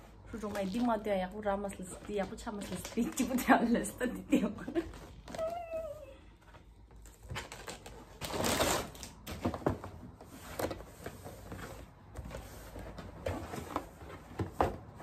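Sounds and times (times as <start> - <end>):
wrapping paper rustling and tearing: 7.0 - 9.4.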